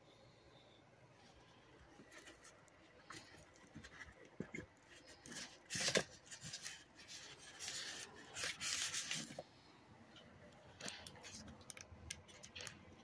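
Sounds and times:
phone handling rubbing and scraping: 2.0 - 9.5.

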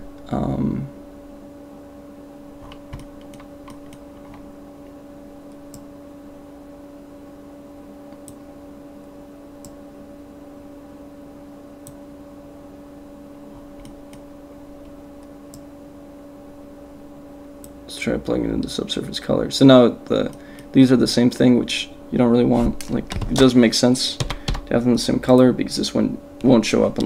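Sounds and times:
low electrical hum: 0.0 - 27.0
computer mouse clicks: 2.6 - 4.4, 5.6 - 5.9, 13.8 - 14.2.

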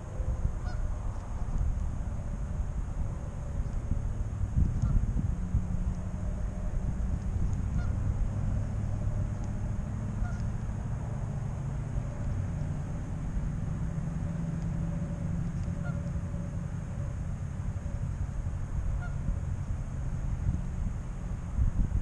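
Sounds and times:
steady low rumble: 0.0 - 22.0
geese honking: 0.6 - 0.9, 7.7 - 8.0, 10.1 - 10.5, 15.6 - 16.2, 19.0 - 19.3.

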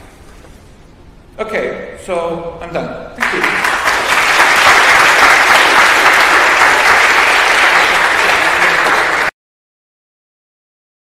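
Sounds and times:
audience applauding: 3.2 - 9.4.

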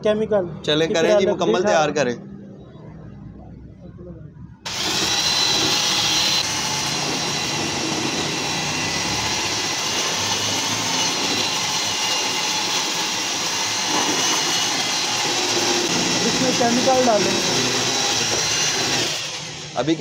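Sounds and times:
electric drill stirring paint: 4.7 - 20.0.

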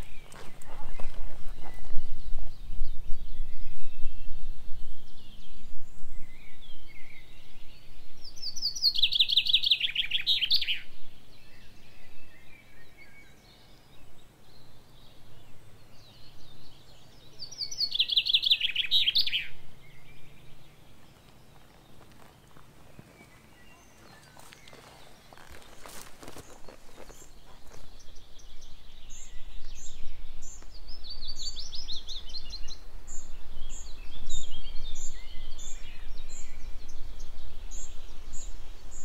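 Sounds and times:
songbird singing falling phrases: 0.0 - 39.0
faint bird calls: 8.5 - 37.0.

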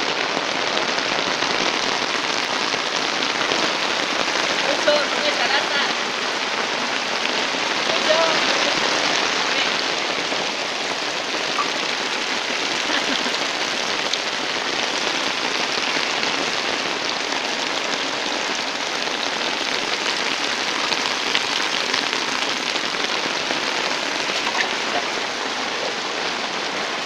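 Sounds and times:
muddy water rushing and splashing: 0.0 - 27.0.

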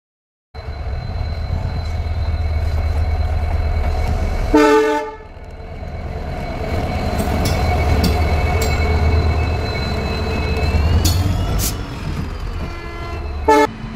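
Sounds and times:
locomotive engine rumbling: 0.6 - 13.9
train horn blast: 4.5 - 5.3, 12.6 - 13.8.

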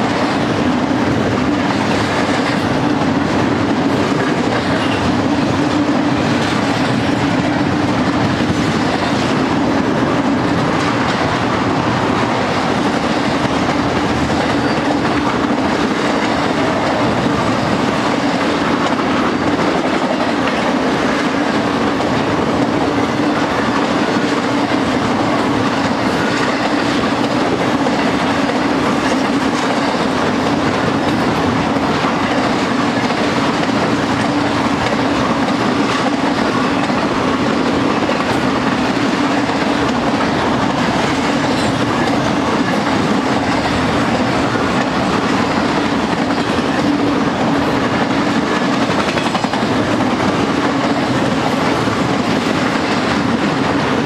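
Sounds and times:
freight train wheels on rails: 0.0 - 54.0.

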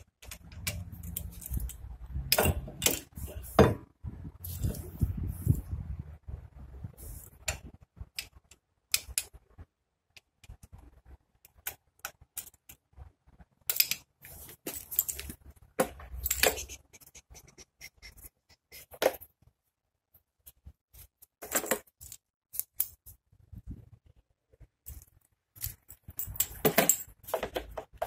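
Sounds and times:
metal hand tools clinking: 14.6 - 15.4, 16.1 - 16.8.

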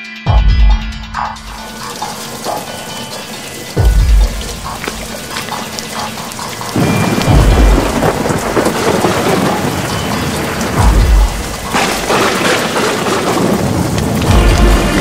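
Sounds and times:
heavy rain: 1.4 - 15.0
deep thunder rumbles: 3.7 - 15.0.

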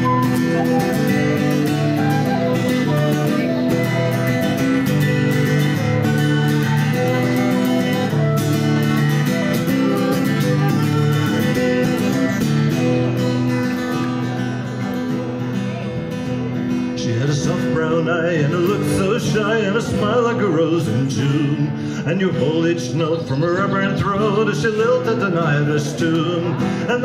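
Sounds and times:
tin whistle melody: 0.0 - 12.6
person singing: 0.0 - 12.9, 17.0 - 27.0
acoustic guitar strumming: 0.0 - 27.0.

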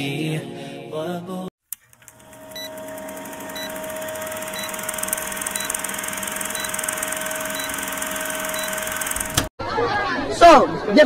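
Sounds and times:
film projector whirring: 1.7 - 9.5
short high beeps: 3.4 - 9.2.

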